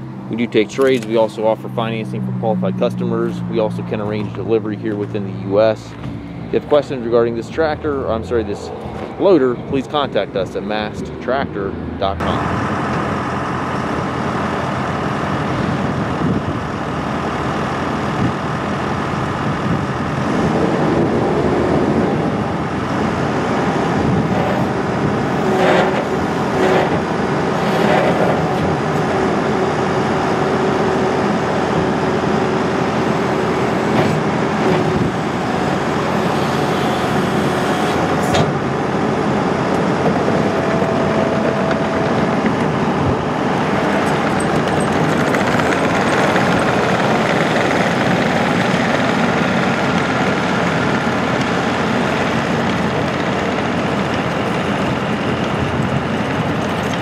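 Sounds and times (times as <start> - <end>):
diesel engine running: 0.0 - 57.0
hydraulic whine: 0.0 - 57.0
loader metal clanks: 24.3 - 29.8, 39.4 - 47.1.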